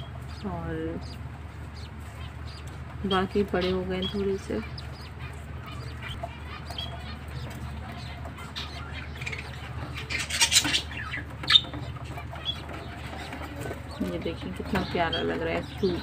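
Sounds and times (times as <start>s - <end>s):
finches chirping and twittering: 0.0s - 16.0s
low steady hum: 0.0s - 16.0s.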